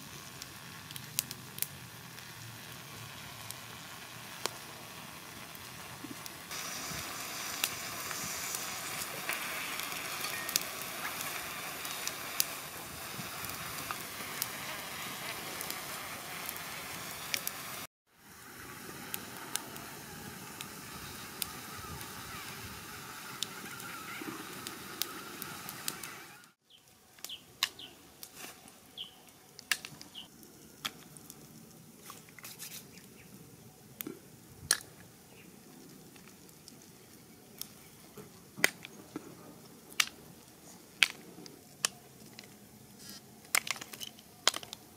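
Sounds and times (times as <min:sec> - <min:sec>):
snails sizzling on grill: 0:00.0 - 0:44.9.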